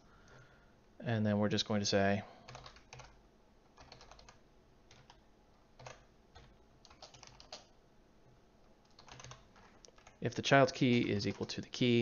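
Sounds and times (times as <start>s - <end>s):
computer keyboard typing: 2.5s - 5.2s, 5.8s - 7.7s, 8.8s - 10.3s, 10.9s - 11.6s.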